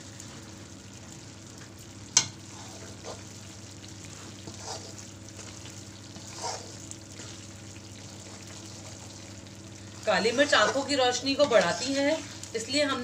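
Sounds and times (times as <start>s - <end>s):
faint sizzle: 0.0s - 13.0s
metal spatula stirring flour: 2.2s - 3.3s, 4.1s - 7.4s, 10.0s - 13.0s.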